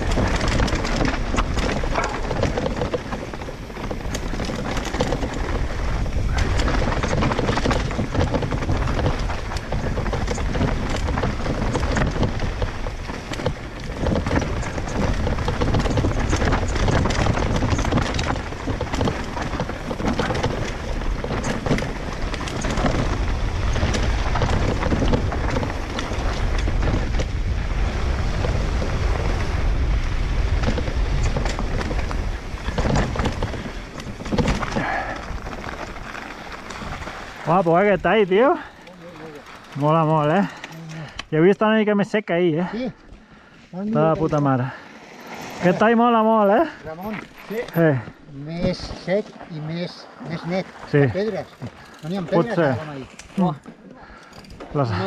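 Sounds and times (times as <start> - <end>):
wind buffeting microphone: 0.0 - 41.3
bike rattles and knocks: 0.0 - 55.0
tyres on dirt and stones: 0.0 - 55.0.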